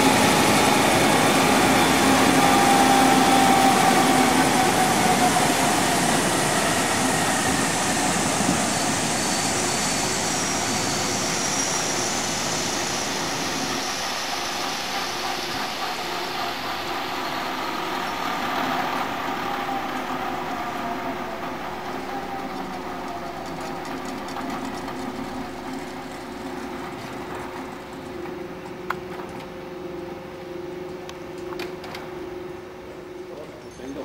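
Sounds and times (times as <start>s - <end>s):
helicopter winding down: 0.0s - 34.0s.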